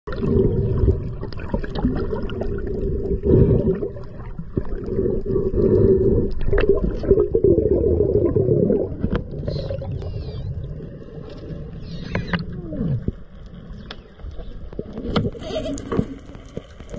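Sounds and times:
underwater rushing water rumble: 0.1s - 16.9s
faint clicks: 11.2s - 16.9s.

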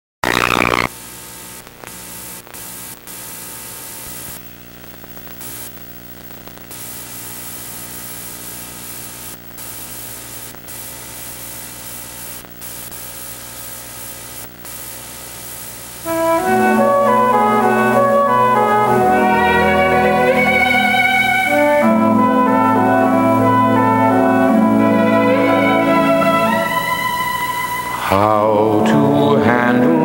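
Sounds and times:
electrical hum: 0.2s - 0.9s
loud noise burst: 0.2s - 0.9s
videotape hiss and static: 0.2s - 30.0s.

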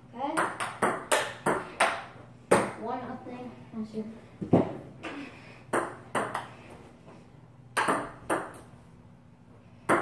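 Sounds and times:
table tennis ball hits: 0.3s - 2.8s, 5.7s - 6.6s, 7.8s - 8.7s.

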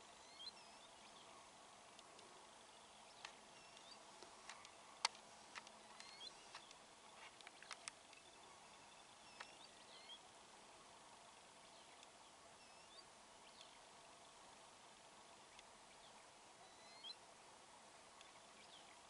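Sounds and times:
faint hiss: 0.0s - 19.0s
sharp clicks: 3.2s - 6.8s, 7.4s - 8.3s
short bird chirps: 16.6s - 17.2s.

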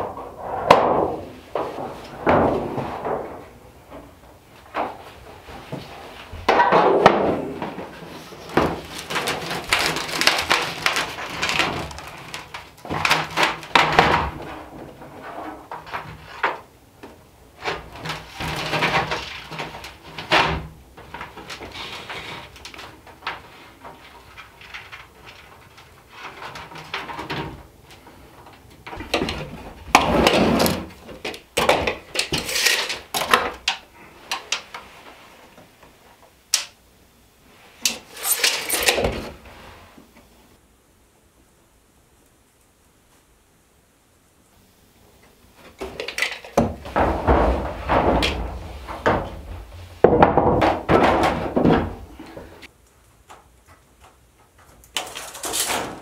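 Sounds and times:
copper sheet flexing and rattling: 0.0s - 16.7s, 17.6s - 35.5s, 37.5s - 40.0s, 45.6s - 52.7s, 54.2s - 56.0s.

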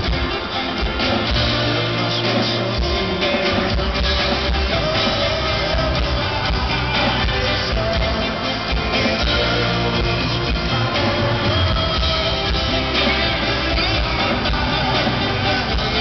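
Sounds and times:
bass guitar: 0.0s - 16.0s
drum kit: 0.0s - 16.0s
electric guitar: 0.0s - 16.0s.

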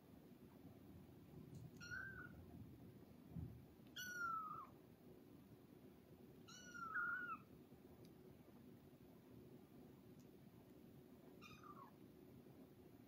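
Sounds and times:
kitten meowing: 1.8s - 2.4s, 4.0s - 4.7s, 6.5s - 7.5s, 11.4s - 12.0s.

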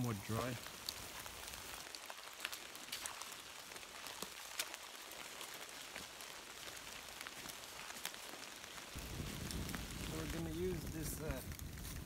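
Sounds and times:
rain and wet snow on leaves: 0.0s - 12.0s.

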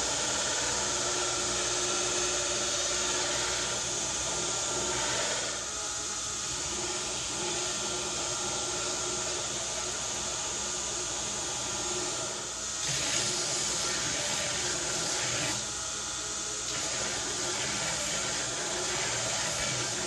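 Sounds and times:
belt grinder grinding steel: 12.0s - 15.8s, 16.6s - 20.0s.

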